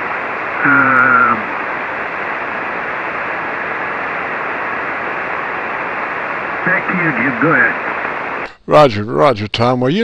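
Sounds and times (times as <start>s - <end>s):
radio receiver static hiss: 0.0s - 8.8s
distant man's voice: 0.6s - 1.6s, 6.6s - 8.0s.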